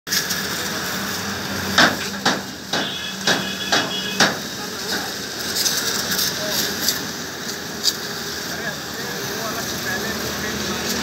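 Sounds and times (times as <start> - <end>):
water jet spraying on metal: 0.1 - 11.0
sharp knocks: 1.8 - 4.4.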